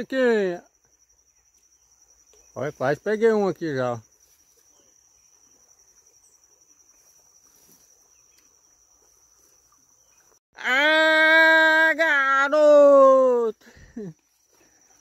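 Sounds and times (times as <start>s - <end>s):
crickets trilling: 0.0s - 15.0s
person shouting: 10.6s - 13.6s.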